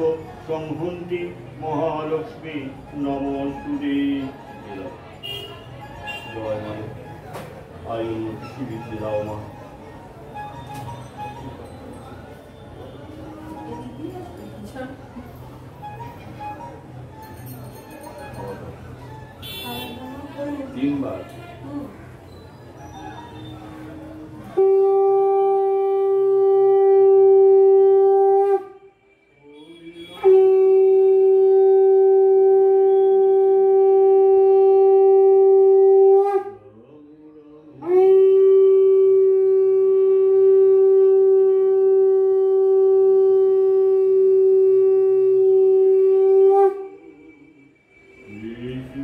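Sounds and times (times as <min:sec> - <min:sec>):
conch shell blasts: 0:24.5 - 0:28.8, 0:29.6 - 0:36.6, 0:37.9 - 0:48.4.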